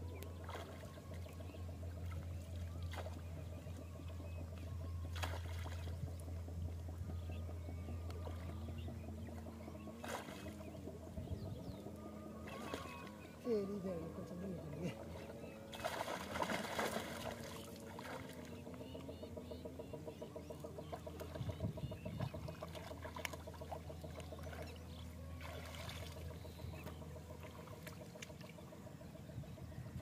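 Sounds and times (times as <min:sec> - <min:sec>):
water sloshing and dripping: 0:05.1 - 0:06.3, 0:14.2 - 0:18.6, 0:22.4 - 0:28.6
water splashing from net: 0:05.2 - 0:05.9, 0:15.7 - 0:18.4, 0:25.4 - 0:26.2.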